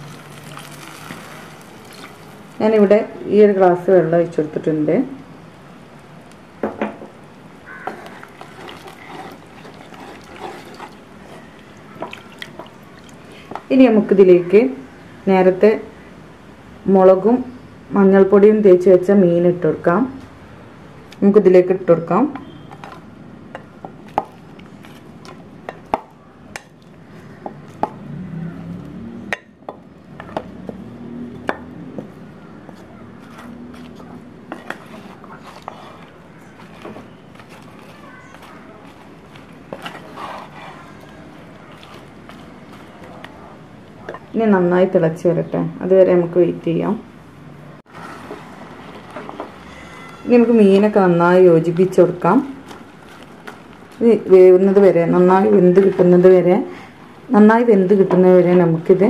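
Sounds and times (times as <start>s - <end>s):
wooden spatula stirring sauce: 7.8s - 13.3s, 32.0s - 44.2s.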